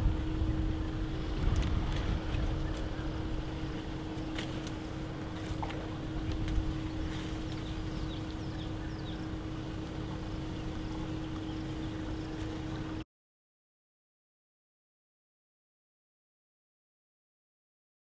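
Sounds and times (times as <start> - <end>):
constant hum: 0.0 - 13.0
low rumble: 0.0 - 13.0.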